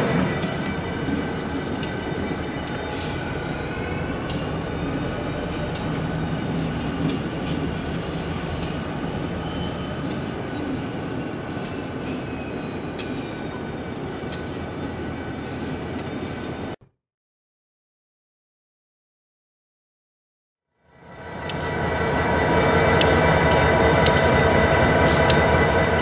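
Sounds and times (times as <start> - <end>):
locomotive engine rumble: 0.0 - 16.7
train wheel squeal: 0.0 - 16.8, 20.8 - 26.0
wheels clicking over rail joints: 22.5 - 26.0.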